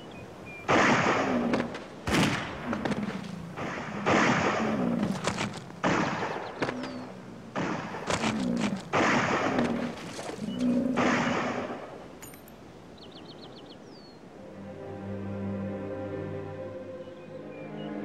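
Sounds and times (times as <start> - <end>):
rifle shots: 0.7 - 5.1, 5.8 - 8.3, 8.9 - 9.7.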